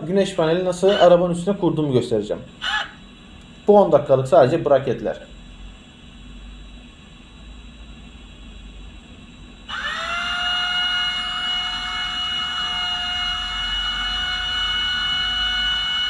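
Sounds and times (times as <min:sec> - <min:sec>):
cordless drill whining: 0:09.7 - 0:16.0.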